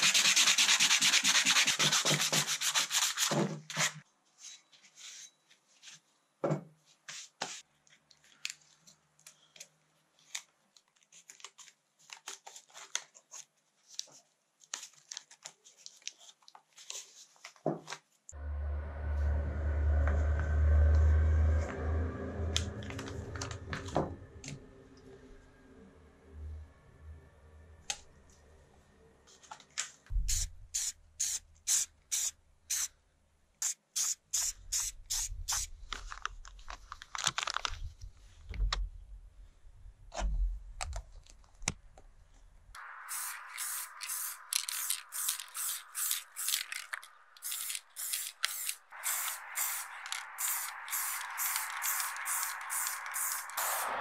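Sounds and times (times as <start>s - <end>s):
aerosol spray can hissing: 30.1s - 32.9s, 33.6s - 35.7s, 42.8s - 54.0s.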